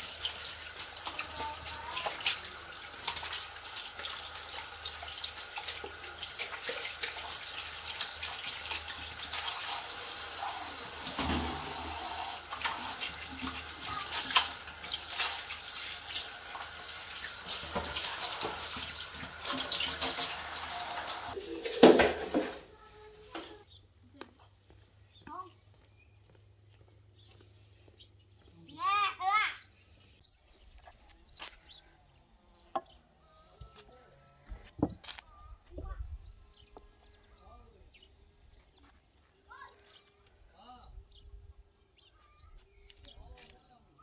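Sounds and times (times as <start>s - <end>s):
wet splashes and squelches: 0.0s - 22.6s
tap water running: 0.0s - 22.7s.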